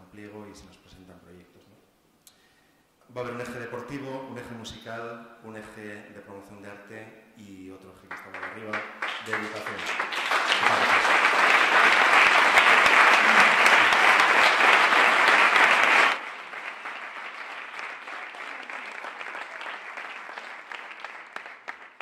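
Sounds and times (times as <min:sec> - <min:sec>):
audience applauding: 0:08.1 - 0:22.0.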